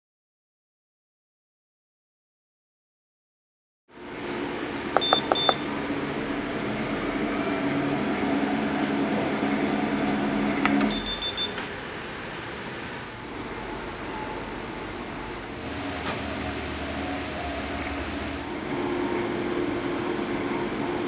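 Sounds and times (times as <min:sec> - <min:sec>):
treadmill motor humming: 0:04.0 - 0:21.0
control panel beeps: 0:05.0 - 0:05.7, 0:10.9 - 0:11.6.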